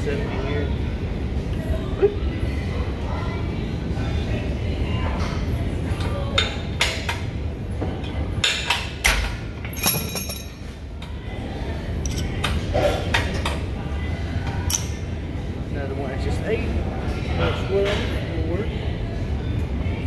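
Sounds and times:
metallic clanks of weight plates: 0:09.7 - 0:10.6.

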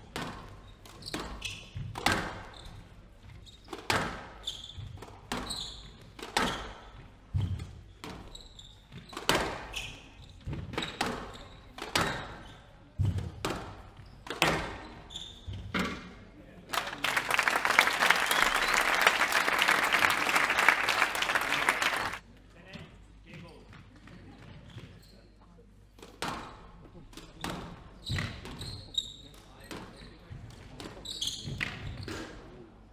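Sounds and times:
squash ball hitting rackets and walls: 0:00.0 - 0:16.1, 0:26.0 - 0:28.8, 0:29.4 - 0:32.4
shoes squeaking on wooden floor: 0:04.4 - 0:12.7, 0:13.9 - 0:15.8, 0:28.0 - 0:29.3.

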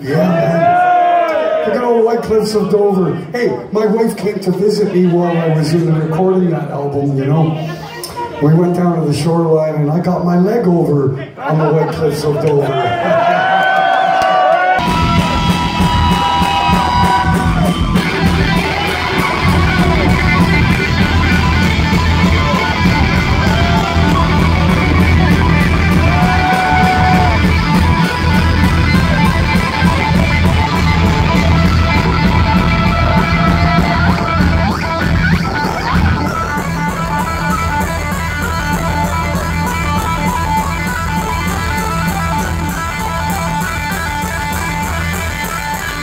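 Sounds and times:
distorted electric guitar slide: 0:14.8 - 0:46.0.

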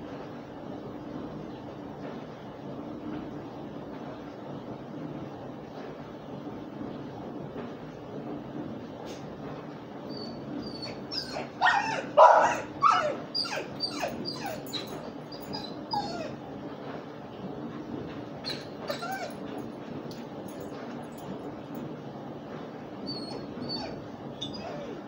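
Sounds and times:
dog whining and yelping: 0:10.1 - 0:16.6, 0:18.4 - 0:19.5, 0:23.0 - 0:25.0.

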